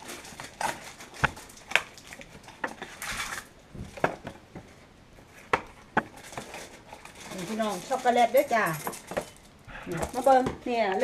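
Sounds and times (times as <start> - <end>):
kitchen utensils knocking and clattering: 5.6 - 11.0.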